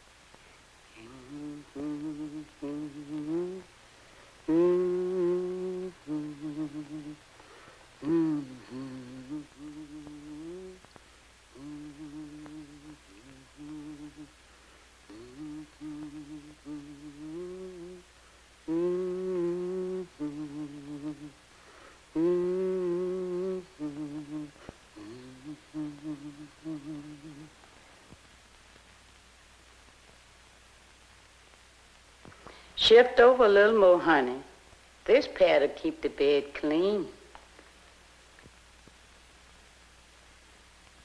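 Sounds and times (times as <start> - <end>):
woman humming: 0.9 - 3.7, 4.4 - 7.2, 8.0 - 14.4, 15.1 - 21.4, 22.1 - 27.6.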